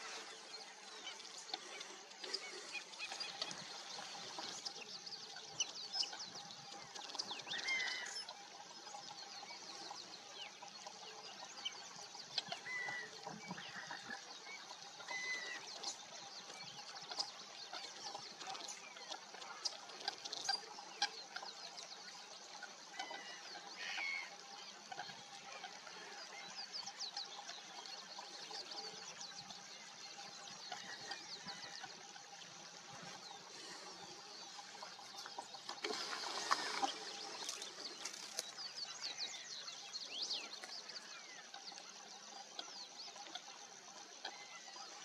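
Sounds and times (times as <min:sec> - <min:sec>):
flock of coots calling: 0:00.0 - 0:45.0.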